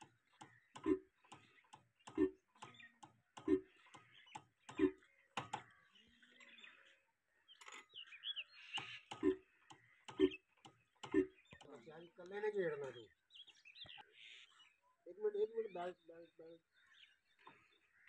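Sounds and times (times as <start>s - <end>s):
birds chirping: 0.0s - 18.0s
stationary engine exhaust beats: 0.7s - 1.4s.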